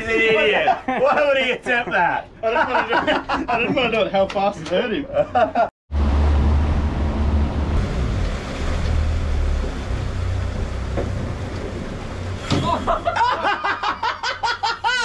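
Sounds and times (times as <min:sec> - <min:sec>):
people talking and laughing: 0:00.0 - 0:05.7
motorboat engine drone: 0:05.9 - 0:13.2
water rushing: 0:05.9 - 0:13.6.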